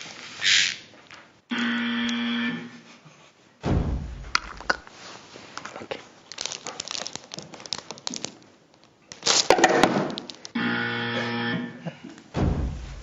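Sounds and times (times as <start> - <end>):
dull thump: 3.6 - 4.7, 12.3 - 13.0
wrapping paper crinkling: 4.4 - 10.6.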